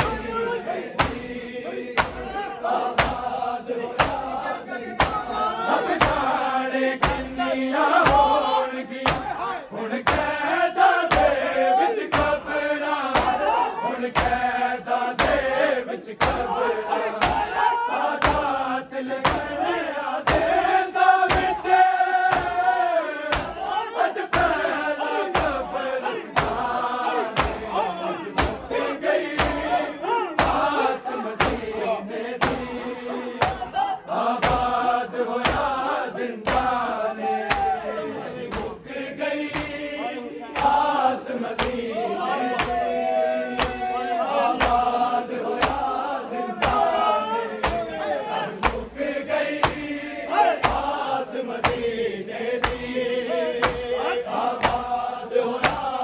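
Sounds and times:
men chanting in unison: 0.0 - 56.0
chest slaps: 1.0 - 1.3, 2.0 - 2.3, 4.0 - 4.4, 5.0 - 5.3, 7.0 - 7.4, 9.0 - 9.4, 11.1 - 11.4, 13.1 - 13.4, 15.2 - 15.5, 16.2 - 16.5, 22.3 - 22.7, 23.3 - 23.6, 27.4 - 27.7, 28.4 - 28.7, 29.4 - 29.7, 31.4 - 31.7, 33.4 - 33.7, 35.4 - 35.7, 36.4 - 36.7, 41.6 - 41.8, 48.6 - 48.9, 49.6 - 49.9, 52.6 - 52.9, 53.6 - 53.9, 54.6 - 54.9, 55.6 - 55.9.

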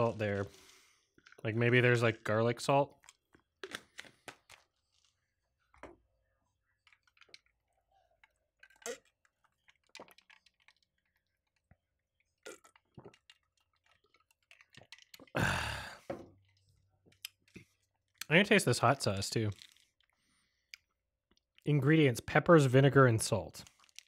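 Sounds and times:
mouth clicks and crunches: 2.9 - 5.2, 6.8 - 11.3, 12.2 - 18.6, 19.4 - 21.6, 23.6 - 24.0
close-miked chewing: 6.7 - 15.4.

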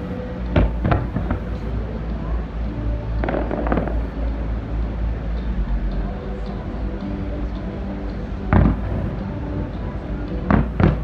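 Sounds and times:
low rumble: 0.0 - 11.0
fireworks crackling pops: 0.5 - 1.8, 3.2 - 4.2, 10.4 - 11.0
fireworks bangs: 0.6 - 1.8, 3.2 - 4.1, 10.4 - 11.0.

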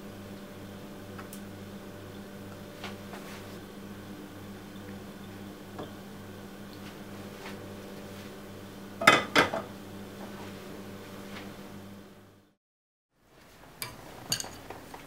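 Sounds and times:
low electrical hum: 0.0 - 12.6
metal utensil clinking on dish: 13.8 - 14.6.

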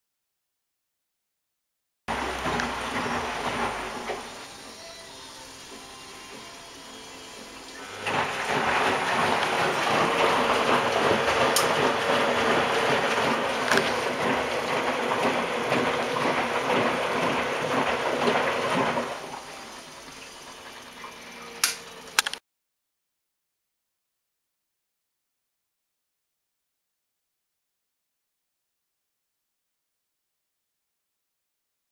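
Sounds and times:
washing machine filling with water: 2.1 - 22.2.

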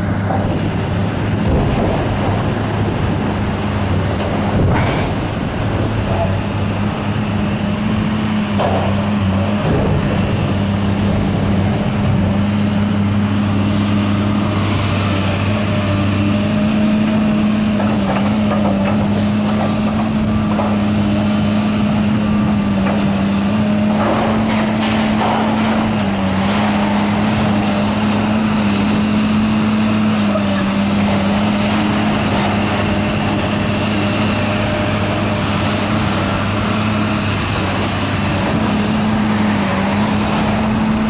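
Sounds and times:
excavator diesel engine running: 0.0 - 41.0
sheet metal crunching and scraping: 23.7 - 29.0.

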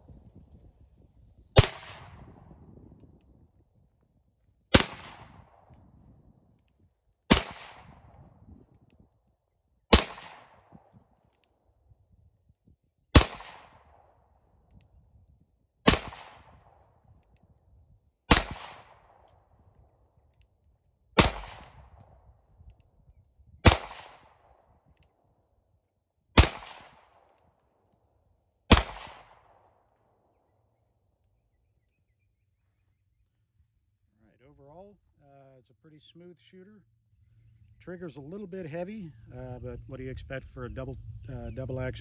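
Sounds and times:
pistol shots: 1.6 - 2.3, 4.7 - 5.7, 7.3 - 8.1, 9.9 - 10.8, 13.1 - 14.1, 15.9 - 16.8, 18.3 - 19.2, 21.2 - 21.9, 23.6 - 24.6, 26.4 - 27.3, 28.7 - 29.7.

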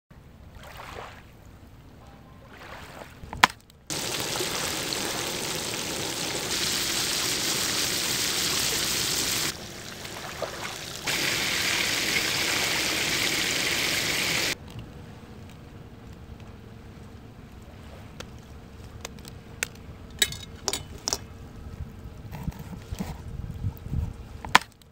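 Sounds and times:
fish sizzling in hot oil: 3.9 - 14.6.

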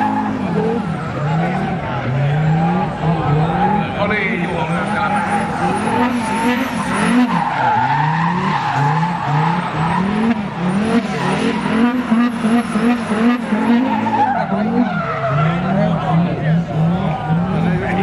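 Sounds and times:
diesel engine revving: 0.0 - 18.0
spinning tyres squealing: 0.0 - 18.0.

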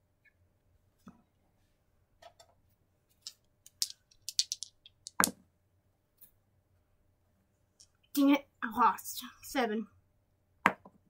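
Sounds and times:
dice clattering: 3.2 - 5.4.

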